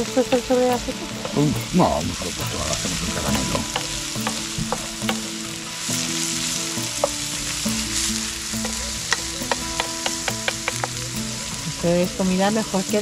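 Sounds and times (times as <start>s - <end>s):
vegetables sizzling in a pan: 0.0s - 13.0s
utensil clicking against pan: 3.3s - 5.3s, 8.6s - 11.2s.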